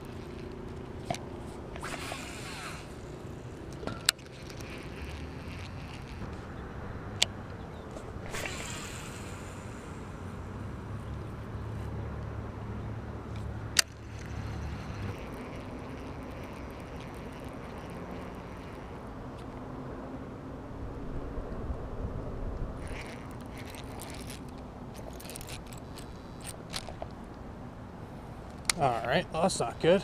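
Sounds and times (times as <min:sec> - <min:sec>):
reel clicks: 0:00.0 - 0:06.5, 0:13.3 - 0:19.6, 0:22.8 - 0:27.2
fishing rod swishing: 0:01.1 - 0:03.2, 0:07.9 - 0:10.1, 0:22.8 - 0:26.9.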